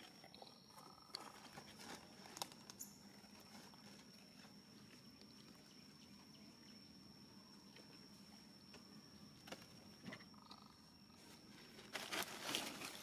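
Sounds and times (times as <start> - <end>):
thin steady high tone: 2.8 - 11.3.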